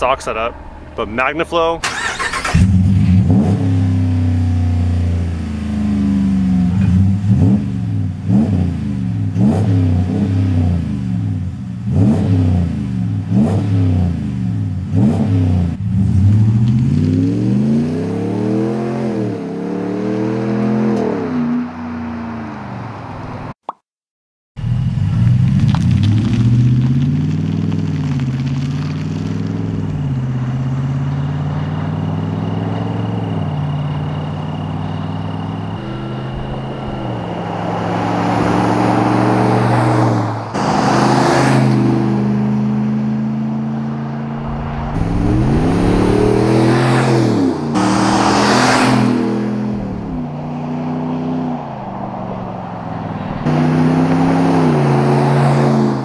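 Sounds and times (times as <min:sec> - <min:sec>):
truck passing by: 0:00.0 - 0:07.0, 0:28.8 - 0:56.0
truck engine accelerating: 0:00.0 - 0:22.7, 0:24.6 - 0:56.0.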